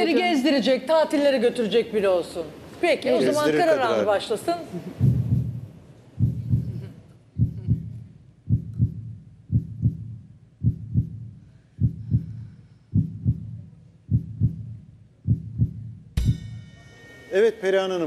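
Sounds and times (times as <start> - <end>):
heartbeat thumps: 5.0 - 16.4.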